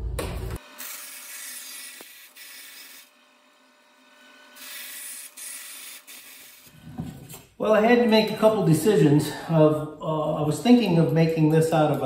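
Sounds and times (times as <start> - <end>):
bandsaw cutting aluminium sheet: 0.6 - 3.2, 4.2 - 6.8.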